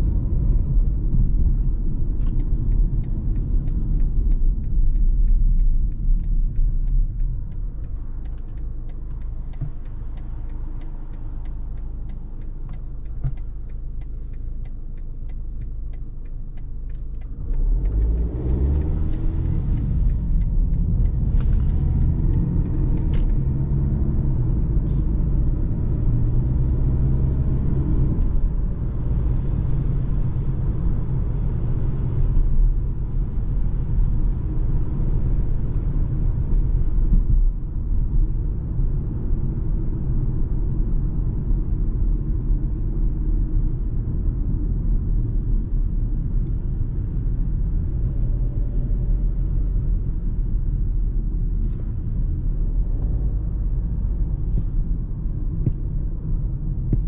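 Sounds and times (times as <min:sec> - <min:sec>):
car engine and road rumble: 0:00.0 - 0:57.0
turn signal ticking: 0:00.0 - 0:57.0.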